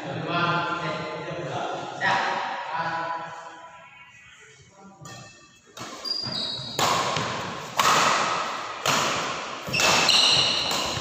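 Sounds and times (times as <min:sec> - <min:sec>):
shoes squeaking on court: 0:05.1 - 0:07.6, 0:09.6 - 0:11.0
rackets hitting shuttlecock: 0:05.1 - 0:11.0.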